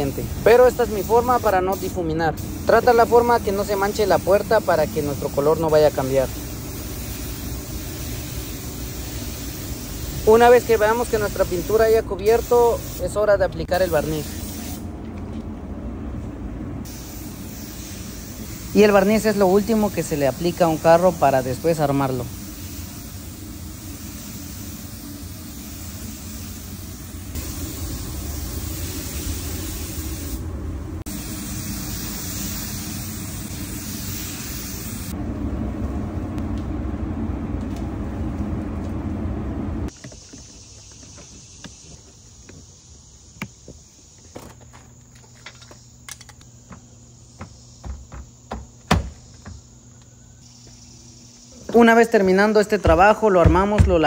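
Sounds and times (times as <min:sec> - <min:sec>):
spray gun hissing: 0:00.0 - 0:14.9, 0:16.8 - 0:35.2
low hum: 0:35.1 - 0:39.9.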